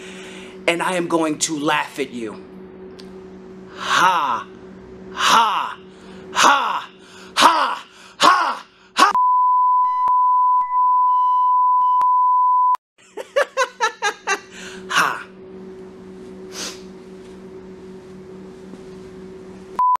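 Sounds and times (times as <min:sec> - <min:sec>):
low electrical hum: 0:00.0 - 0:09.1, 0:13.0 - 0:19.8
high-pitched electronic beep: 0:09.2 - 0:12.8
man cackling laugh: 0:13.0 - 0:15.3.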